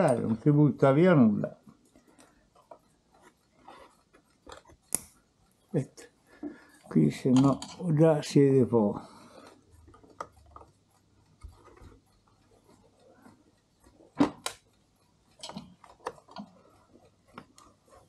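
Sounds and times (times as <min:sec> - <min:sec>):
small metal clicks and taps: 0:06.4 - 0:07.9, 0:13.1 - 0:17.8.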